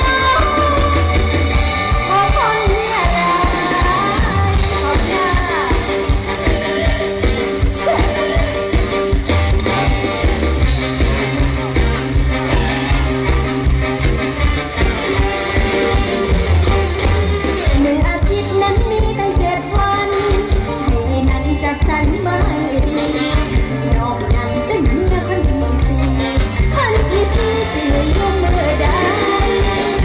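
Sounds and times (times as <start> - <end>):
woman singing: 0.0 - 1.3, 2.0 - 9.2, 17.7 - 30.0
band music with bass beat: 0.0 - 30.0.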